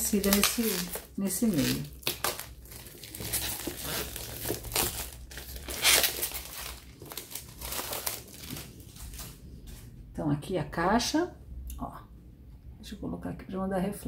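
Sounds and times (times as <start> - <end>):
plastic shrink-wrap crinkling: 0.0 - 9.9.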